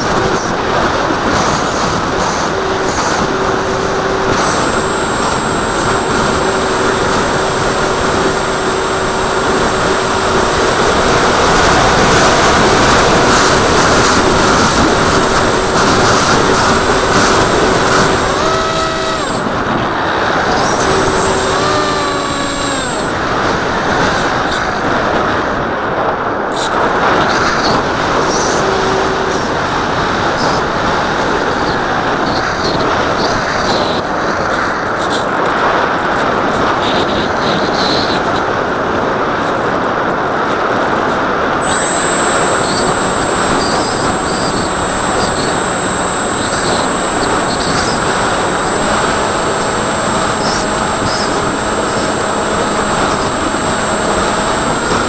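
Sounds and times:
electric motor and propeller whine: 0.0s - 24.6s, 26.6s - 32.2s, 41.6s - 55.0s.

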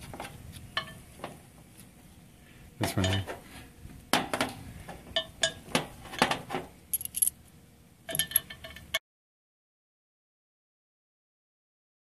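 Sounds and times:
high tinkling metal rings: 6.9s - 7.3s
light metallic clinks and taps: 6.9s - 7.3s, 8.1s - 8.9s.

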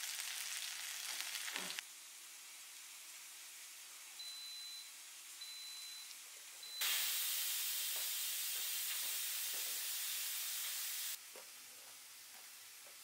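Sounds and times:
pressure cooker steam hissing: 6.7s - 11.2s.

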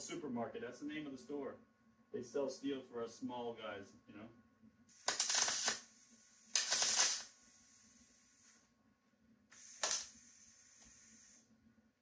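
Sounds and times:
welding hiss and crackle: 4.9s - 8.7s, 9.5s - 11.5s.

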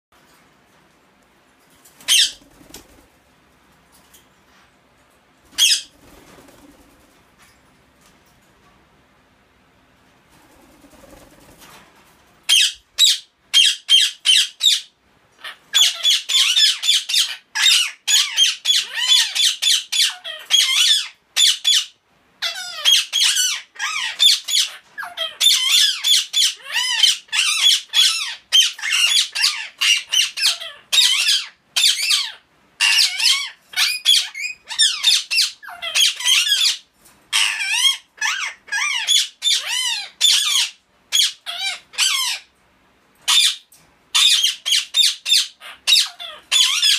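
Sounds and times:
parakeets squawking: 2.0s - 2.4s, 5.5s - 5.9s, 12.5s - 42.5s, 43.2s - 46.9s.

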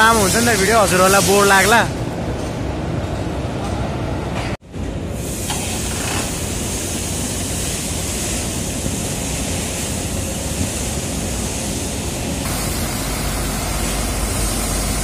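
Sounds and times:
steady air hiss: 0.0s - 1.9s, 5.1s - 15.0s
diesel truck idling: 12.5s - 15.0s.

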